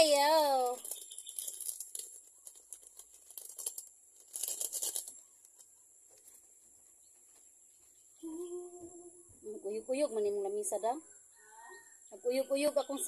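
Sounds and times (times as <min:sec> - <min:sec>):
plastic bags rustling: 0:00.0 - 0:05.6.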